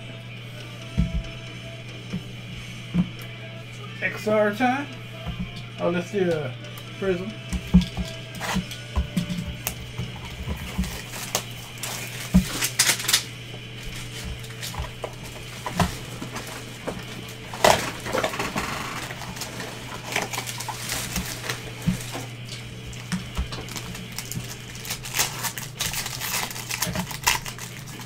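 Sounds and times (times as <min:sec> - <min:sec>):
steady low hum: 0:00.0 - 0:28.0
wrapper crinkling: 0:10.6 - 0:28.0.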